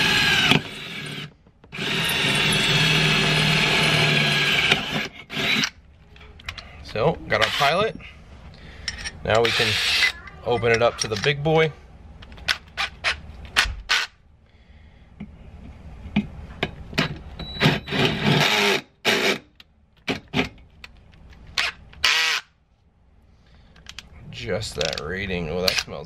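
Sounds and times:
power drill drilling into steel: 0.0s - 5.7s.

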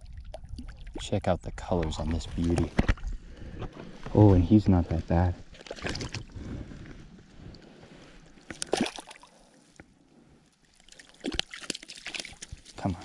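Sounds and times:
shallow water sloshing: 0.0s - 4.1s, 5.3s - 13.0s
water splash: 5.6s - 6.3s, 8.5s - 9.3s, 11.0s - 12.8s.

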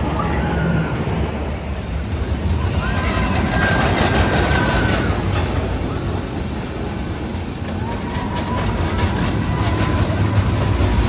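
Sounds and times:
amusement park rumble: 0.0s - 11.0s.

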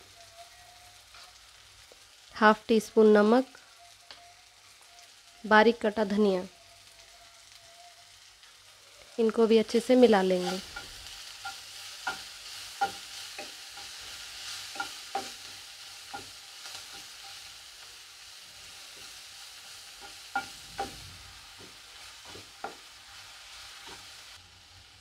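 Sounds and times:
low steady sizzle: 0.0s - 25.0s
spatula clinking on pan: 10.4s - 14.0s, 14.7s - 17.3s, 20.0s - 21.0s
metal spatula scraping pan: 19.8s - 24.4s.

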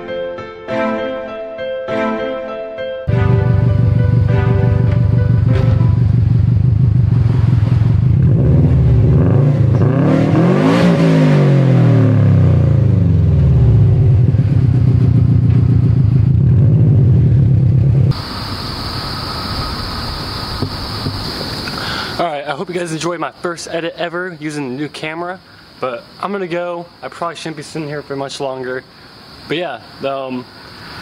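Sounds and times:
steady hum with high whine: 3.1s - 9.0s, 12.6s - 31.0s
car engine idling and revving: 3.2s - 18.2s.

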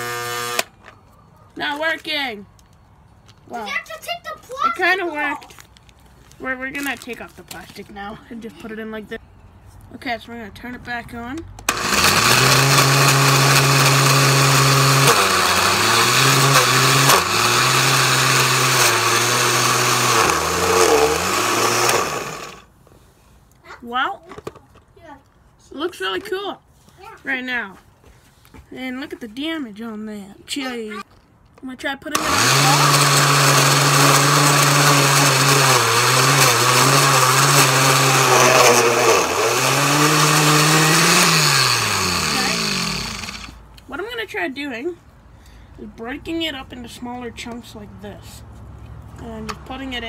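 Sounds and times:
blender motor running: 0.0s - 0.7s, 11.7s - 22.7s, 32.2s - 43.6s.

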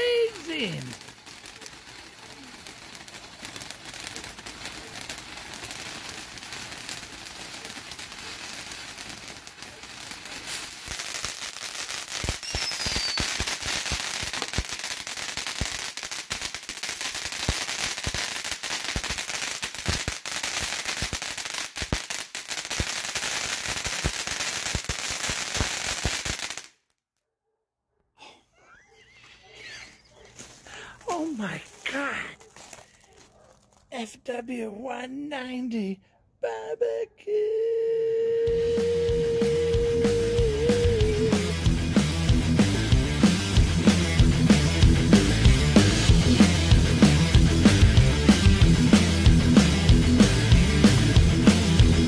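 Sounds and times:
firework fountain hissing: 0.0s - 26.7s, 37.6s - 42.7s
crackling pops: 0.0s - 27.0s, 30.1s - 34.2s.

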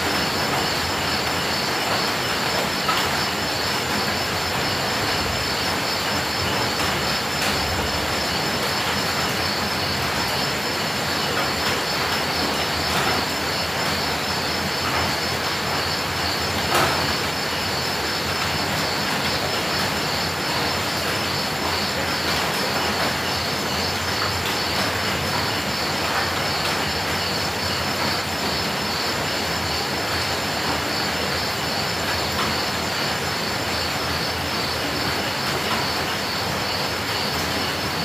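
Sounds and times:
steady rain hiss: 0.0s - 38.0s.

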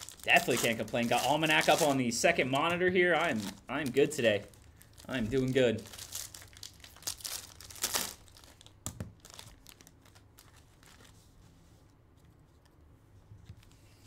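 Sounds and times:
foil wrapper crinkling and tearing: 0.0s - 11.2s.

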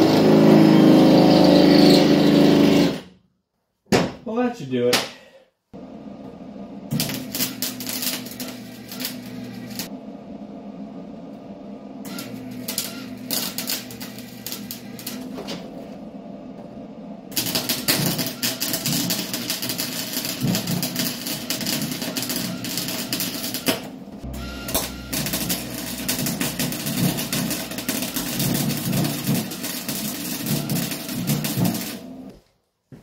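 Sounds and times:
welding arc crackling: 6.8s - 9.9s, 12.0s - 15.4s, 17.3s - 32.4s.

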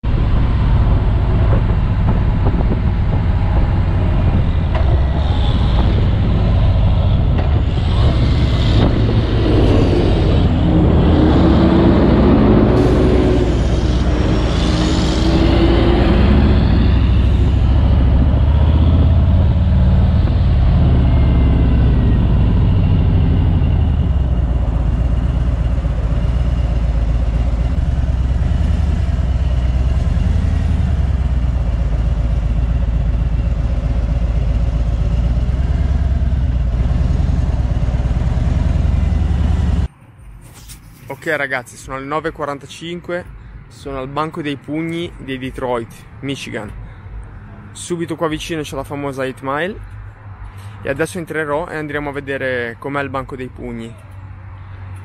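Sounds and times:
motorcycle engine rumble: 0.0s - 41.1s
wind noise: 0.0s - 41.1s
road noise: 0.0s - 55.0s.

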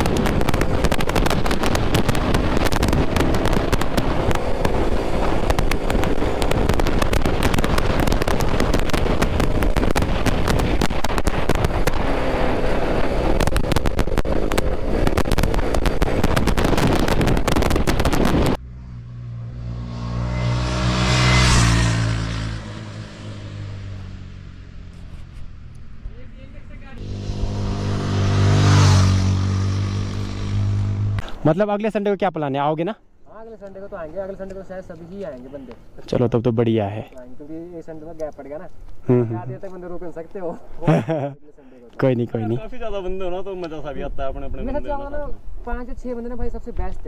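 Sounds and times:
motorcycle engine: 0.0s - 16.3s, 18.4s - 31.3s
wind buffeting microphone: 0.0s - 18.6s
motor vehicle passing: 0.0s - 31.6s.

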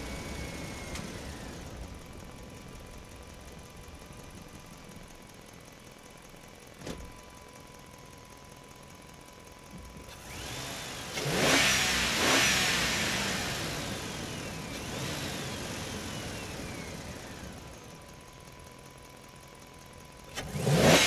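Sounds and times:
engine revving: 10.1s - 17.7s, 20.3s - 21.0s.

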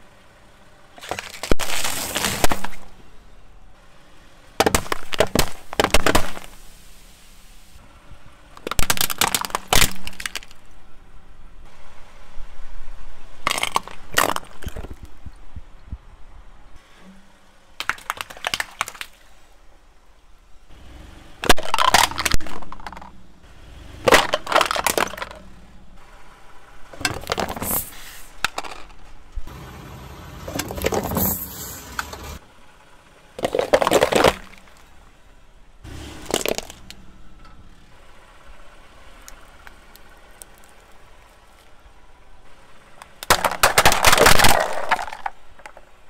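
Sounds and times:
car tyre crushing objects: 0.9s - 3.5s, 4.4s - 6.8s, 8.5s - 11.0s, 13.2s - 15.4s, 16.8s - 20.2s, 21.4s - 29.6s, 30.3s - 32.4s, 33.3s - 46.0s.

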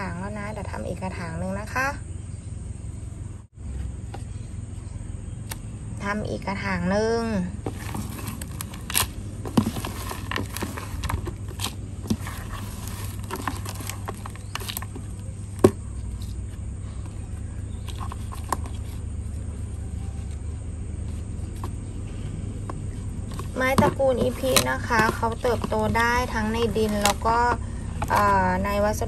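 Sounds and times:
hand scooping coir into pot: 7.6s - 20.4s.

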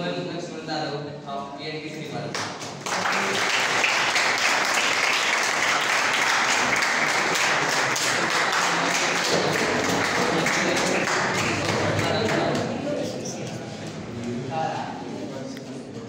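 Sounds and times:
audience applauding: 2.6s - 12.8s.

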